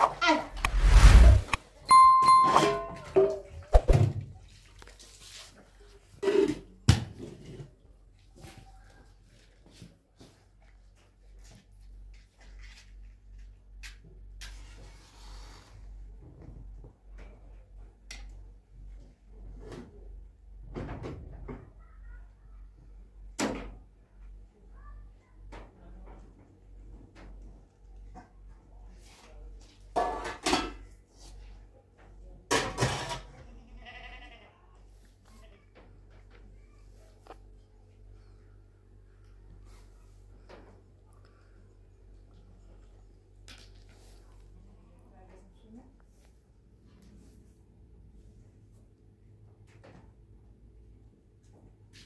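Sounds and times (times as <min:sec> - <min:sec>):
kitchen knocks and clatters: 0:29.9 - 0:31.0, 0:32.5 - 0:33.3
livestock bleating: 0:33.5 - 0:34.6.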